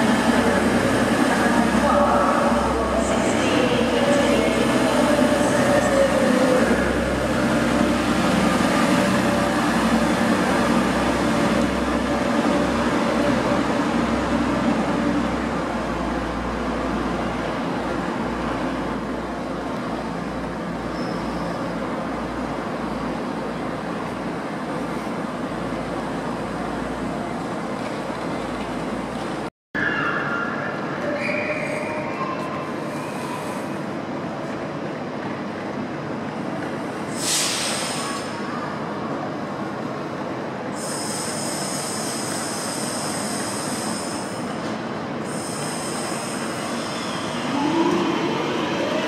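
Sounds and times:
diesel train engines rumbling: 0.0s - 29.5s, 30.2s - 49.0s
burst of hiss: 37.2s - 38.3s.

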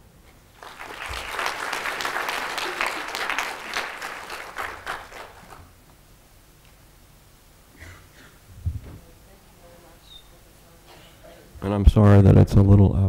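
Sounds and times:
audience applauding: 0.6s - 5.8s.

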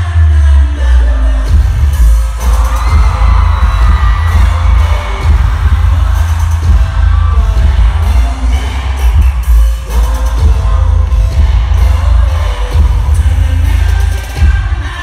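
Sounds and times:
dance music with heavy bass: 0.0s - 15.0s.

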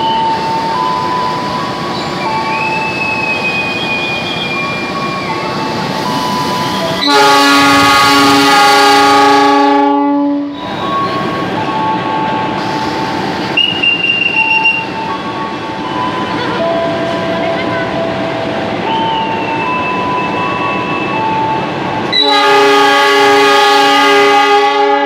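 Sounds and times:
shrill whistle: 0.0s - 7.2s, 13.5s - 15.1s, 18.9s - 21.5s
locomotive horn blast: 6.6s - 10.6s, 22.1s - 25.0s.

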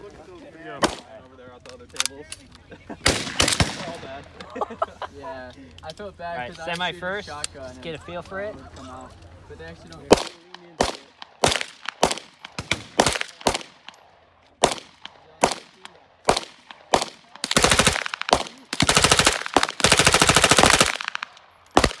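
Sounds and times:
single gunshots: 3.0s - 4.2s, 10.1s - 13.9s, 14.6s - 22.0s
submachine gun bursts: 17.0s - 22.0s.

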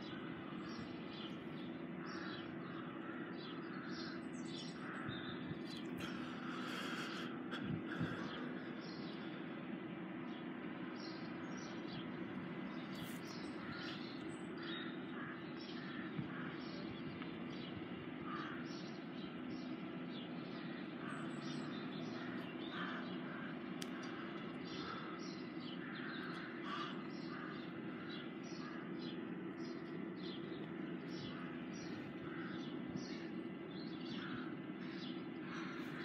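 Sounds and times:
birds calling: 0.0s - 36.0s
steady low hum: 0.0s - 36.0s.

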